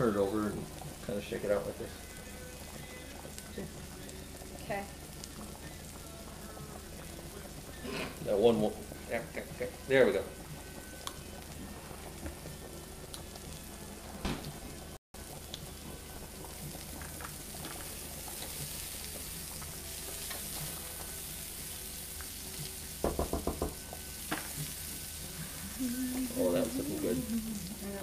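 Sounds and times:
zucchini sizzling in a frying pan: 0:00.0 - 0:28.0
spatula tapping on pan: 0:23.0 - 0:24.8.

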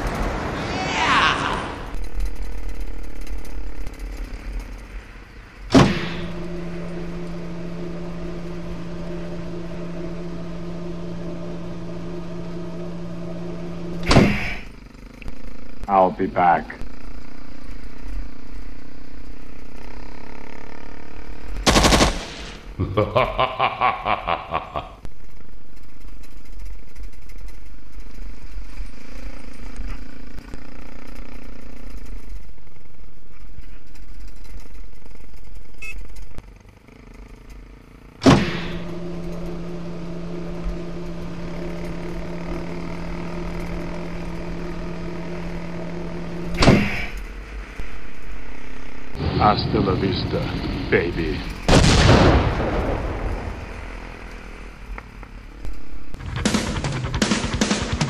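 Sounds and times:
motorcycle engine: 0:00.0 - 0:58.0
loud bangs: 0:05.6 - 0:11.7, 0:49.2 - 0:54.8.

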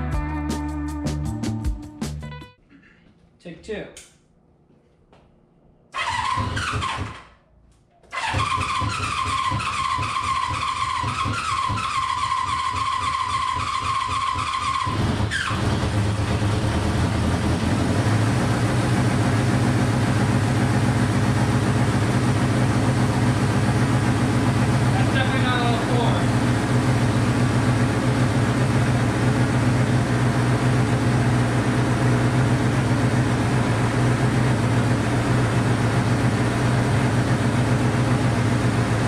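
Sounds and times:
electric starter whining: 0:05.9 - 0:07.4, 0:08.1 - 0:17.5
motorcycle engine running: 0:06.0 - 0:07.2, 0:08.1 - 0:39.0.

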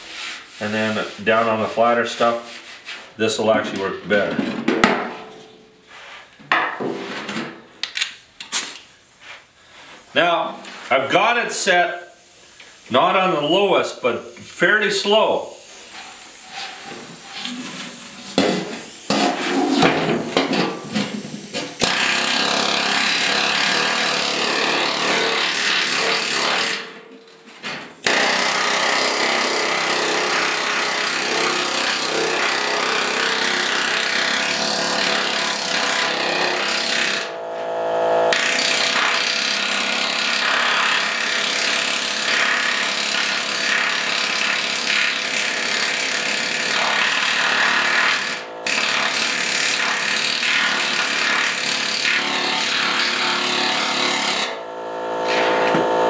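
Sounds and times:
air hammer on sheet steel: 0:15.5 - 0:27.1, 0:27.7 - 0:56.0.

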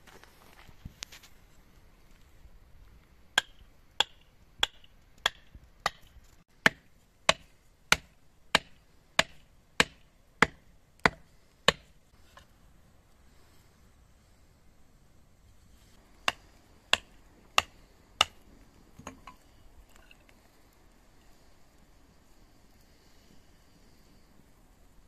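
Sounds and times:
hammer knocking on wooden stake: 0:03.4 - 0:11.9.

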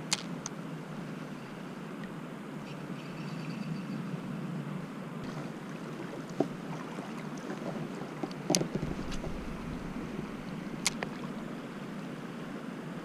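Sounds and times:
flowing river water: 0:04.8 - 0:13.0.

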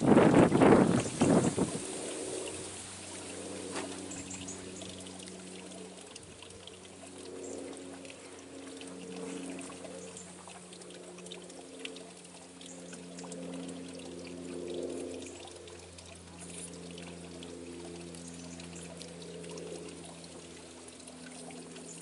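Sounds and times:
water pouring and trickling: 0:00.0 - 0:22.0.

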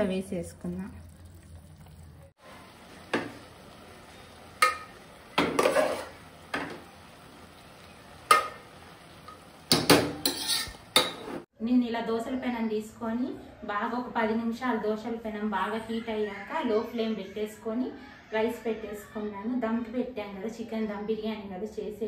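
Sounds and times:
metal ladle clinking on pots: 0:04.6 - 0:06.8, 0:08.2 - 0:08.6, 0:09.3 - 0:11.3.

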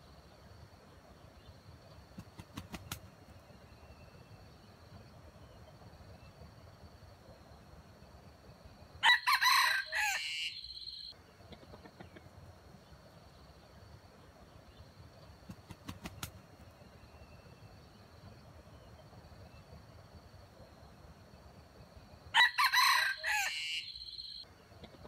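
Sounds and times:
rooster crowing: 0:09.0 - 0:11.1, 0:22.3 - 0:24.4.

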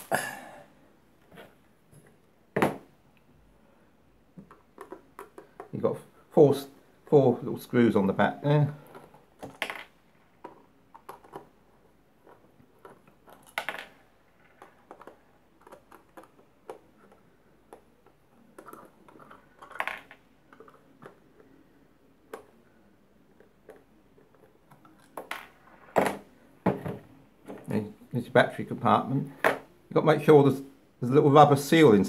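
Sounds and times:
sharp taps of plastic handling: 0:04.4 - 0:05.8.

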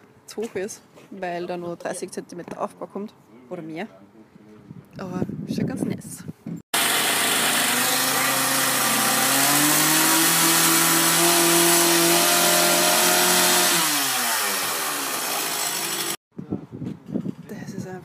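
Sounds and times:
engine running: 0:06.8 - 0:16.2.

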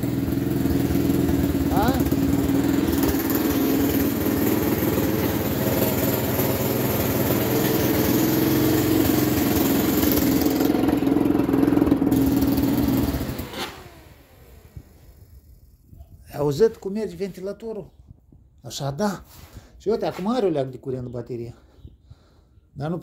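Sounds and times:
atv engine idling: 0:00.0 - 0:09.2.

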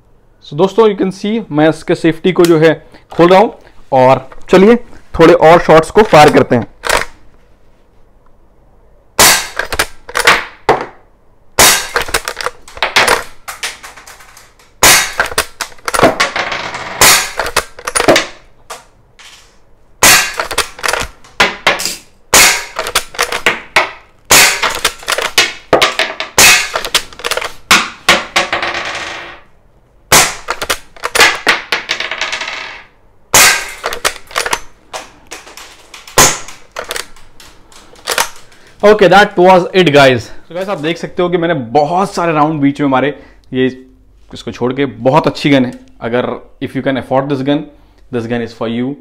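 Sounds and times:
air rifle shots: 0:09.2 - 0:10.6, 0:11.6 - 0:16.4, 0:17.0 - 0:18.4, 0:20.0 - 0:28.4, 0:30.1 - 0:31.7, 0:33.3 - 0:38.4.

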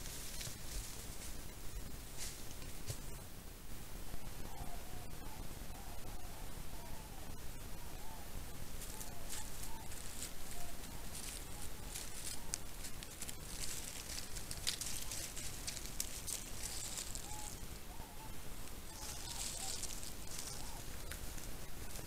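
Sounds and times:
rustling in dry grass: 0:00.0 - 0:03.4, 0:07.9 - 0:22.0
steady low hiss: 0:00.0 - 0:22.0.

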